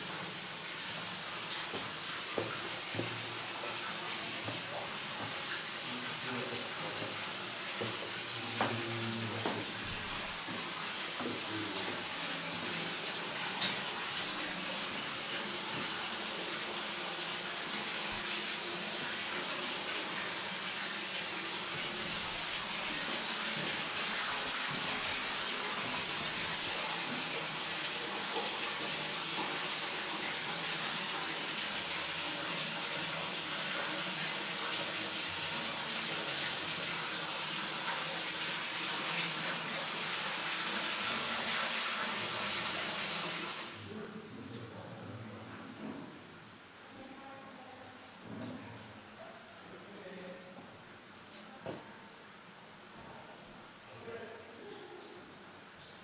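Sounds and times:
running water in a cave: 0.0 - 44.2.

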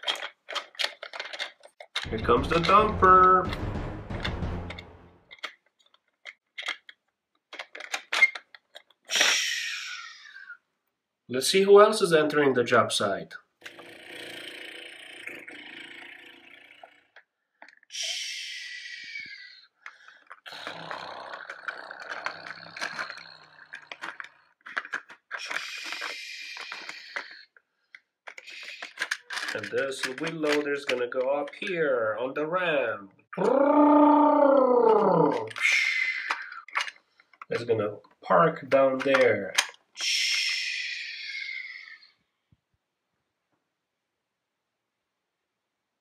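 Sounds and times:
plastic toy scraping and rattling: 0.0 - 9.4, 19.8 - 31.8, 35.2 - 39.9
toy truck scraping rasp: 9.1 - 10.4, 19.9 - 27.6, 28.3 - 31.0
plastic toy clicks and taps: 22.1 - 27.4, 28.3 - 31.7, 35.3 - 37.7, 38.9 - 39.8.

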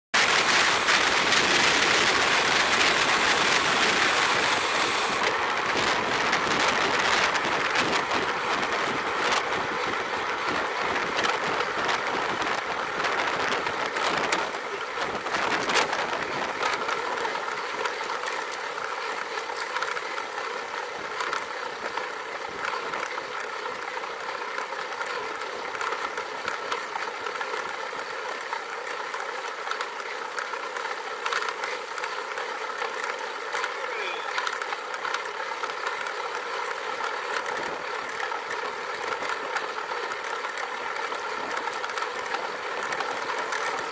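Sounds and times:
wind rushing over microphone: 0.2 - 16.6
bicycle clicks and rattles: 0.2 - 43.9
tyre and road noise: 0.2 - 43.9.

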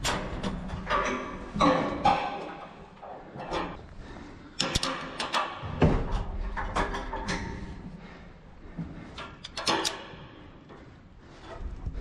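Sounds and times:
metal climbing gear clanking: 0.0 - 3.8, 4.6 - 7.9, 9.1 - 10.8.

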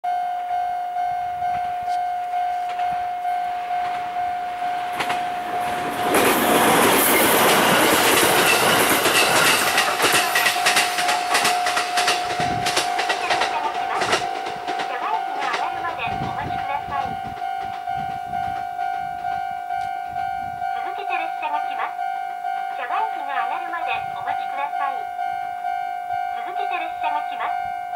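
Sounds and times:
level crossing bell ringing: 0.0 - 27.9
train wheels rushing on rail: 2.6 - 21.8.

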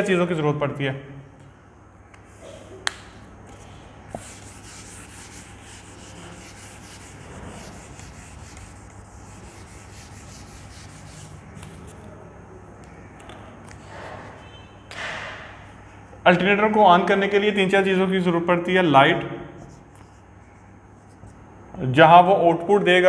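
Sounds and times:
eraser wiping whiteboard: 4.1 - 12.0.

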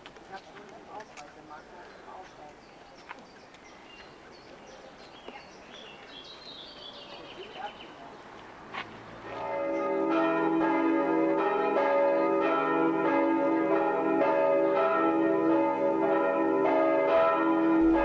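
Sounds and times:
church bells ringing a peal: 9.2 - 18.0.

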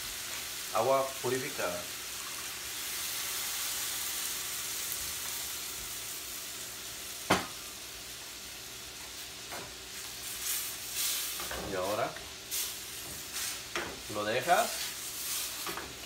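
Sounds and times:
shrimp sizzling in a skillet: 0.0 - 16.0
sharp knock: 7.3 - 7.5.

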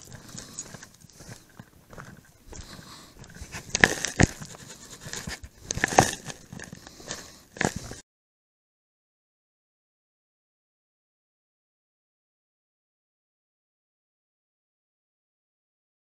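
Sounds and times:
camera rustling: 0.0 - 8.0
footsteps on gravel: 0.0 - 8.0.

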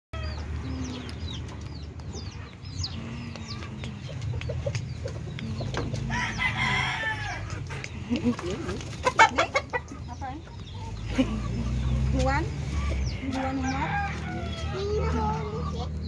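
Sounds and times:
chickens clucking: 0.2 - 16.0
rooster crowing: 6.1 - 7.5, 13.3 - 15.0.

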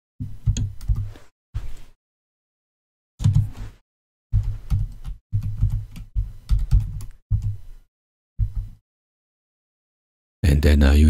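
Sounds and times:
computer keyboard typing: 4.4 - 7.6.

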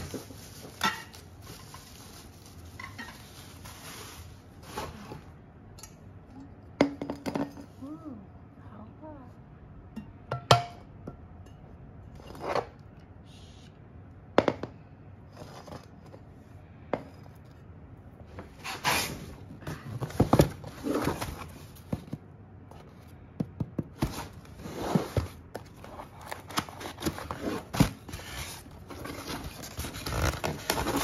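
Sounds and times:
cardboard box rustling and scraping: 18.4 - 22.1, 24.0 - 31.0.

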